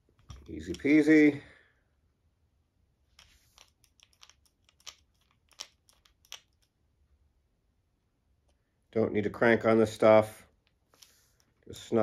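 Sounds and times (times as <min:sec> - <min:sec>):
small metal parts clicking: 0:03.2 - 0:06.7.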